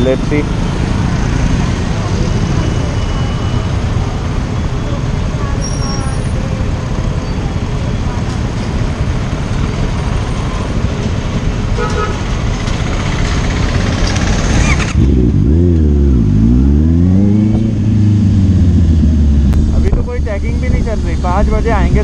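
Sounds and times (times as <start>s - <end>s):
street traffic noise: 0.0s - 22.0s
car horn toot: 11.8s - 12.2s
motorcycle engine revving: 11.8s - 22.0s.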